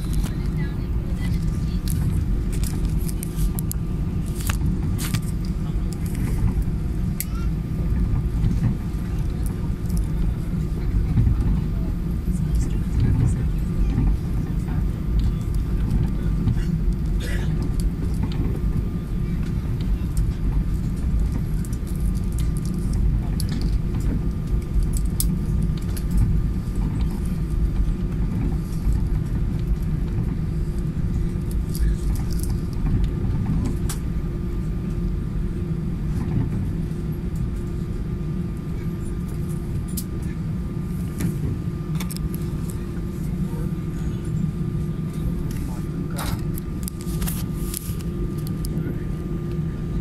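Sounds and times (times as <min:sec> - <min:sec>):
jet engines rumbling: 0:00.0 - 0:50.0
light rattles and clicks: 0:12.4 - 0:34.1.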